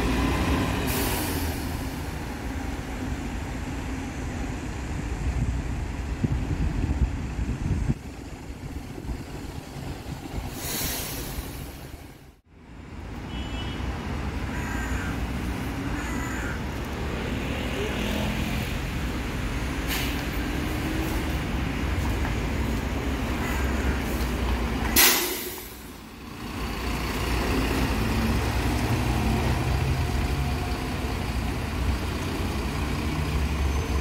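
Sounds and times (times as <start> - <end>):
diesel bus engine passing: 0.0 - 12.4, 14.0 - 34.0
air brake hiss: 0.9 - 2.0, 10.5 - 11.9, 19.9 - 20.2, 25.0 - 25.9.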